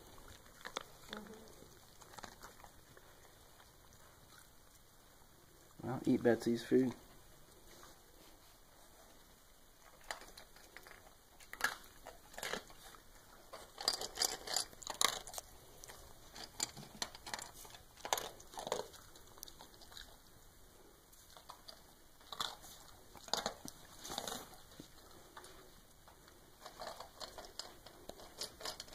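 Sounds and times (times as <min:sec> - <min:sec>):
dogs chewing toys: 0:00.0 - 0:05.8, 0:06.6 - 0:28.9
dogs scuffling with toys: 0:22.5 - 0:25.7.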